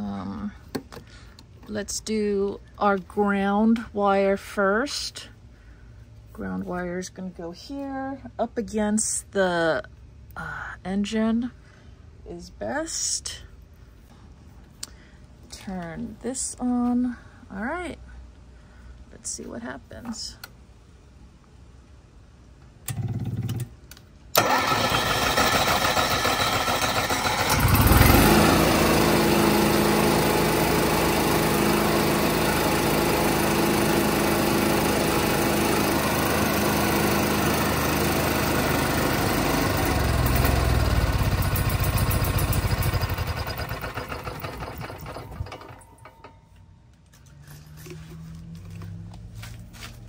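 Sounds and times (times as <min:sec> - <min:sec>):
generator engine cranking and running: 0:22.8 - 0:48.9
starter buzz: 0:24.3 - 0:46.1.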